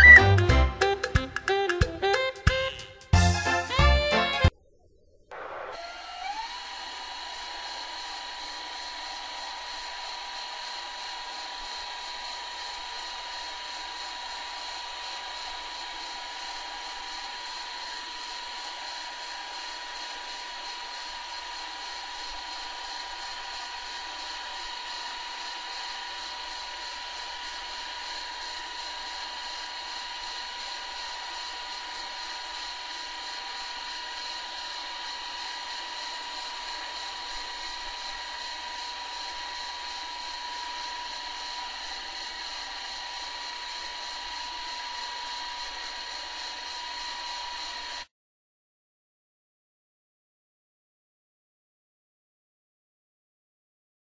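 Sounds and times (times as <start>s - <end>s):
high whine: 4.3s - 6.5s.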